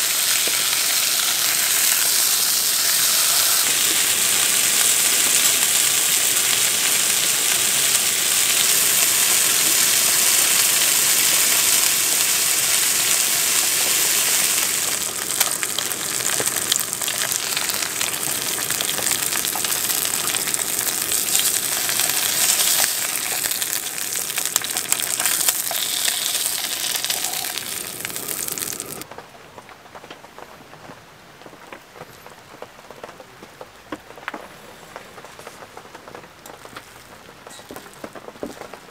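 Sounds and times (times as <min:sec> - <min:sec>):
pork belly sizzling in a pan: 0:00.0 - 0:29.1.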